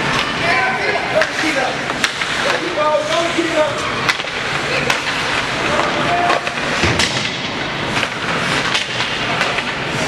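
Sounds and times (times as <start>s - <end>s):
arena crowd din: 0.0s - 7.8s
hockey sticks and puck knocking boards: 1.1s - 10.0s.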